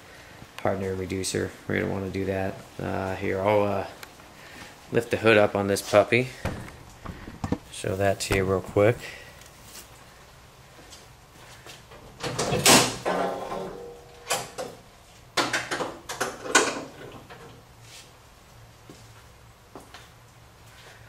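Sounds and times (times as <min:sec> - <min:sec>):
car hood clunking and clattering: 0:06.4 - 0:07.7.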